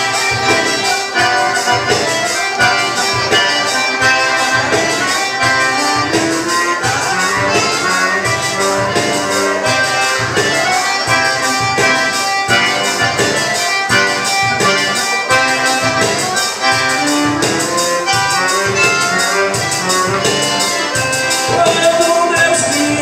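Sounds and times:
accordion dance music: 0:00.0 - 0:23.0.

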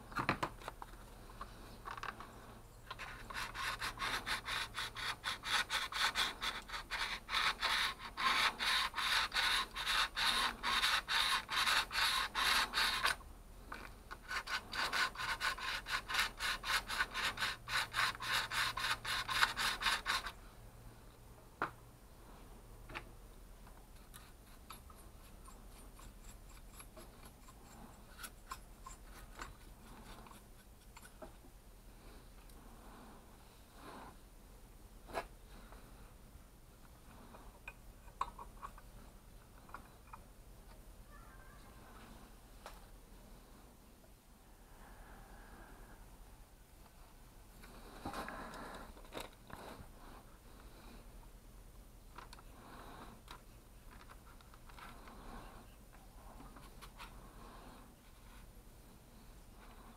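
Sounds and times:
brush scrubbing metal: 0:03.0 - 0:13.1, 0:14.2 - 0:20.4, 0:24.3 - 0:31.2.

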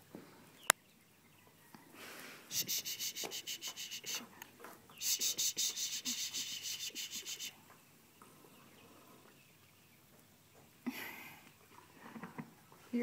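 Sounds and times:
hand rubbing horse's tongue: 0:02.5 - 0:04.3, 0:05.0 - 0:07.5.

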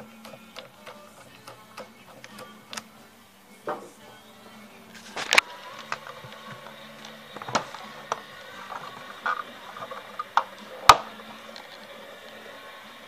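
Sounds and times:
plastic clips clicking: 0:00.0 - 0:03.0.

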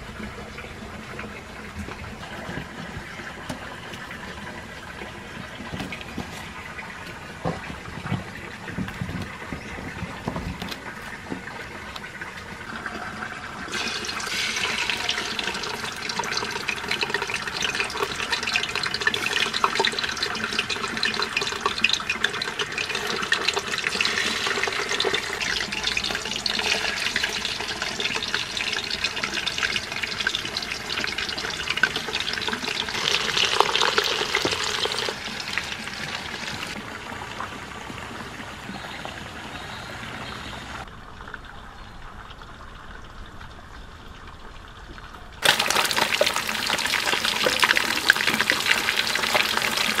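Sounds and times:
water pouring into a wok: 0:11.5 - 0:38.1, 0:45.4 - 0:50.0.

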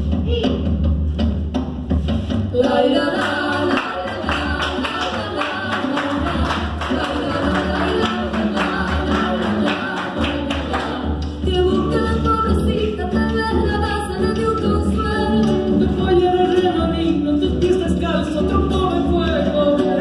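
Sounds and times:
folk dance music: 0:01.0 - 0:20.0
hand claps: 0:03.1 - 0:11.4.

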